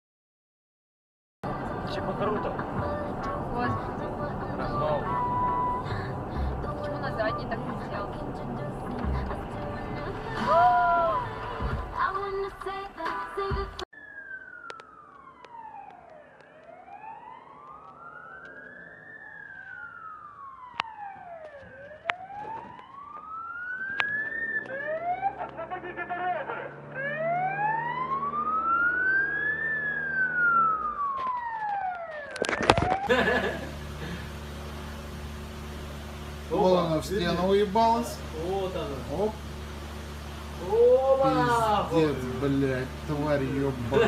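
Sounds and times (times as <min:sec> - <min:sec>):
siren wailing: 0:03.6 - 0:08.1, 0:10.3 - 0:11.7, 0:13.9 - 0:33.9, 0:36.5 - 0:44.0.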